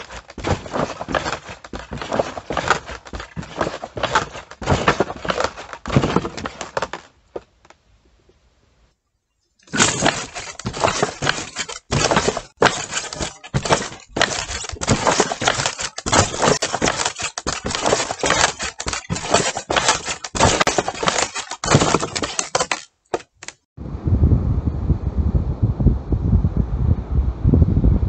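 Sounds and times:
wooden figure scraping on boards: 0.0 - 7.6, 9.7 - 23.7.

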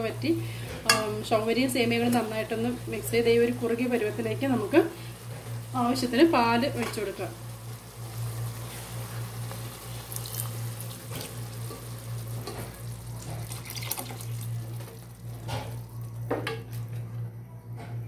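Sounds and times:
steady low hum: 0.0 - 18.0
syrup bubbling: 9.1 - 16.2
milk pouring and splashing: 10.0 - 11.6, 13.1 - 15.9.

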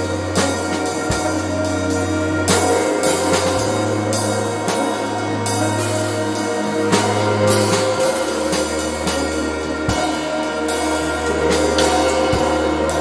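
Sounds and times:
electronic synthesizer music: 0.0 - 13.0.

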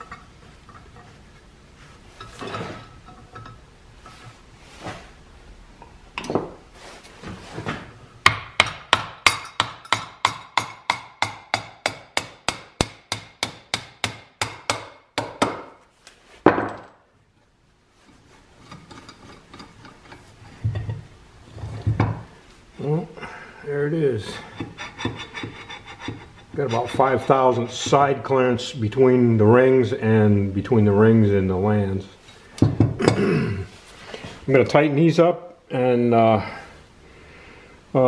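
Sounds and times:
hammer tapping on metal: 8.3 - 15.7.

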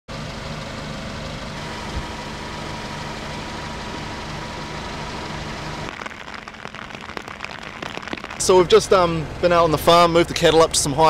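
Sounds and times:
steady hiss: 5.9 - 8.8.

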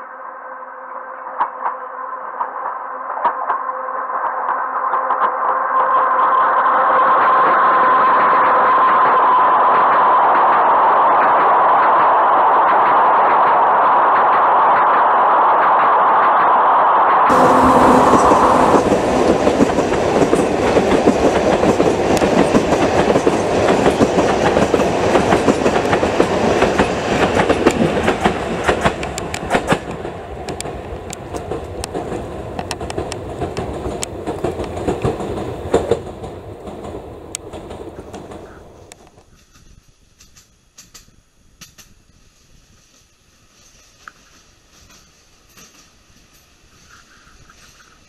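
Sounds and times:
steady whine: 0.0 - 39.2
train wheels clattering over rail joints: 17.3 - 42.0, 42.9 - 48.0.

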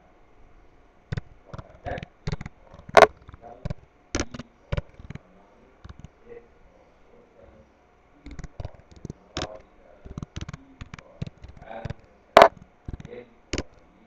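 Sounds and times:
computer keyboard typing: 1.1 - 5.2, 5.8 - 6.2, 8.3 - 13.9.

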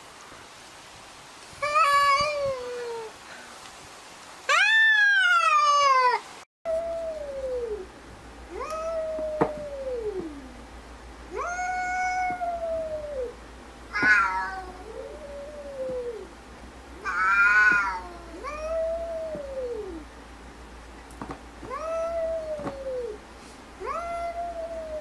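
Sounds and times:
cat yowls: 1.6 - 3.1, 4.5 - 7.9, 8.5 - 10.6, 11.3 - 16.3, 17.0 - 20.1, 21.6 - 23.2, 23.8 - 25.0
cats meowing: 1.6 - 3.1, 8.5 - 10.6, 11.3 - 16.3, 17.0 - 20.1, 21.6 - 23.2, 23.8 - 25.0.

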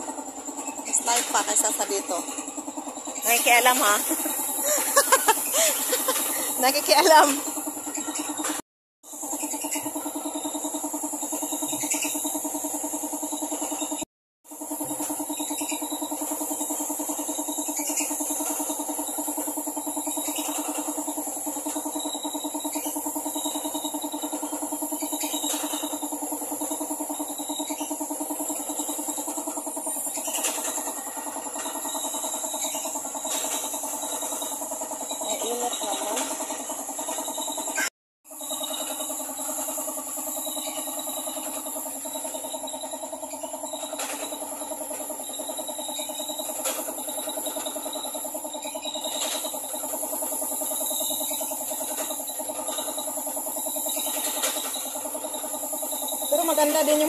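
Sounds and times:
air compressor running: 0.0 - 57.0
pulsing machine hum: 0.0 - 57.0
spray gun hissing: 3.2 - 7.3.

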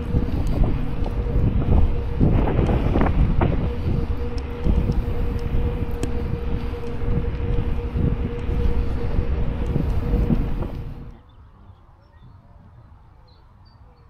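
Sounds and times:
faint steady hum: 0.0 - 11.4
wind buffeting microphone: 0.0 - 13.2.

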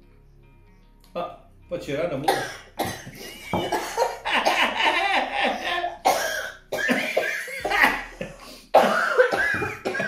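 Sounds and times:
people coughing: 2.3 - 10.0
people laughing: 3.2 - 5.9.

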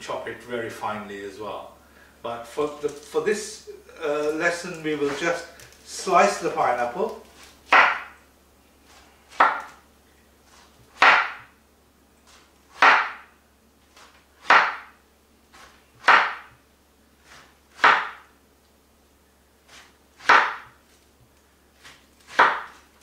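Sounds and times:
knife slicing pineapple: 4.2 - 5.4, 21.8 - 22.9.

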